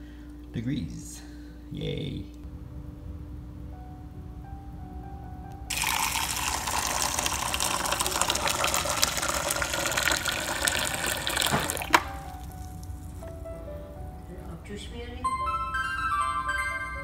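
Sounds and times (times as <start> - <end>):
water pouring into plastic cup: 5.7 - 12.9.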